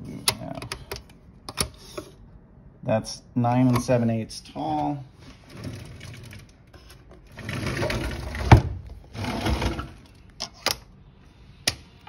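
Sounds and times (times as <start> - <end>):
drawer rattling slide: 7.3 - 10.0.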